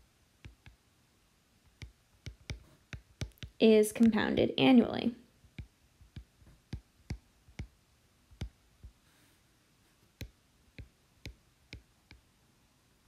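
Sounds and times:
stylus tapping on glass screen: 1.7s - 3.6s.

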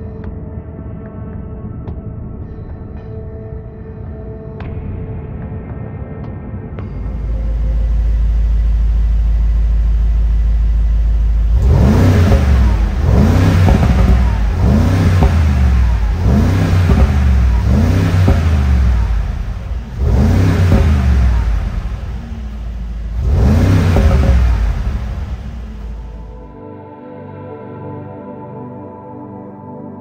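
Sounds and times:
car engine idling and revving: 6.8s - 26.5s.

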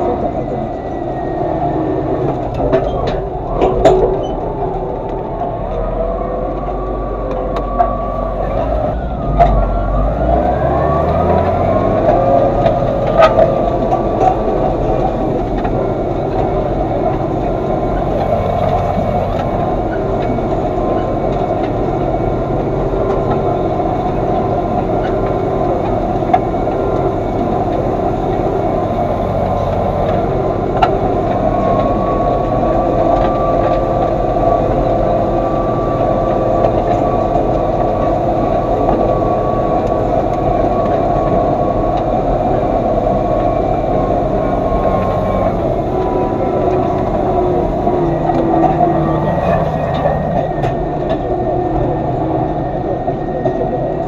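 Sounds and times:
tractor diesel engine running: 0.0s - 54.0s
machinery clunks: 1.8s - 5.8s.

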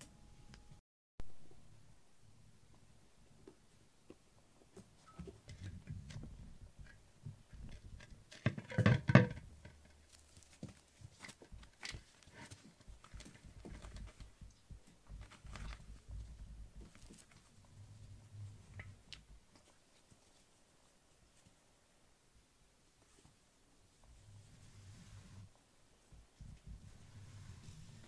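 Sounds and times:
clatter of knocks: 7.5s - 9.9s
kitten paws pattering on mats: 10.1s - 17.7s.

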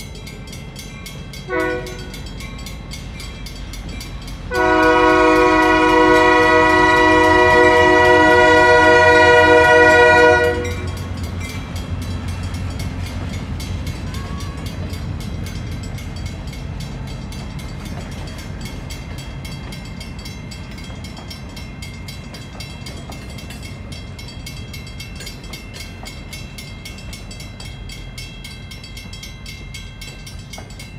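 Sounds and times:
crossing bell dinging: 0.0s - 30.9s
train rolling past rumble: 0.0s - 30.9s
locomotive air horn blast: 1.5s - 2.1s, 4.5s - 10.9s.

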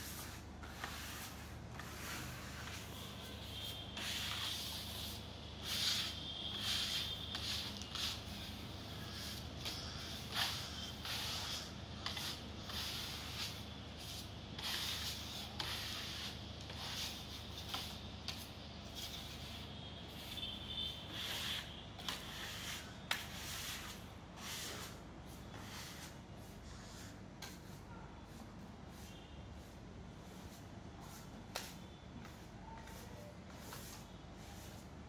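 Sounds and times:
trowels scraping wet paste: 0.1s - 19.6s, 21.1s - 26.1s.

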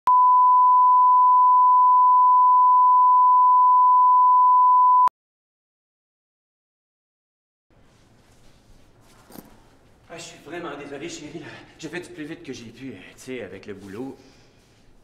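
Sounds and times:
sine-wave reference tone: 0.1s - 5.1s.

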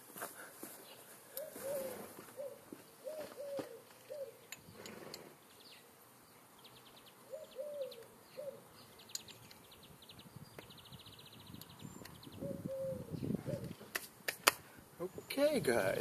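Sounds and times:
bird cooing: 1.4s - 5.4s, 7.2s - 8.9s, 12.2s - 13.9s.

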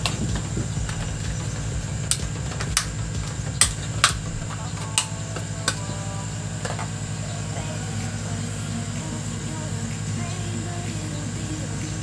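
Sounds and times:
stick clicking and tapping: 0.0s - 5.8s
low engine-like hum: 0.0s - 12.0s.

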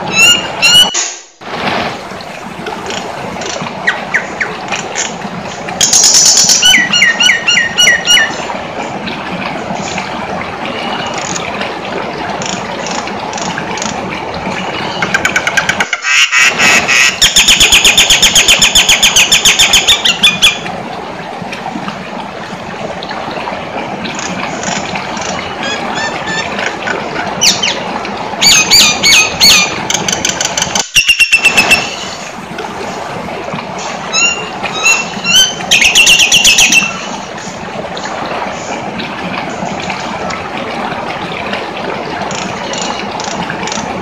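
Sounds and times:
steady background noise: 0.0s - 44.0s
songbird calling: 6.6s - 8.4s.

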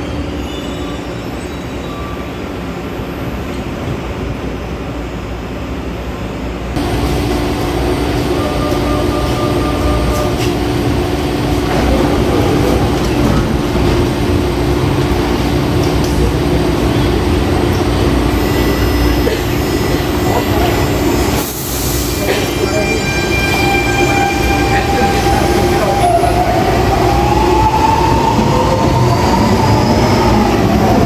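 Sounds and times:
train equipment humming: 2.4s - 31.0s
station noise: 6.8s - 31.0s.

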